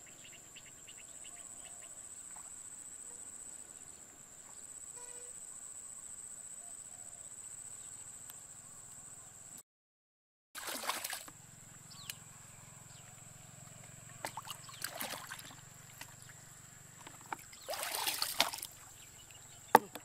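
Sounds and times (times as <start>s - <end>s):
water splashing and sloshing: 10.6s - 11.4s, 14.1s - 19.0s.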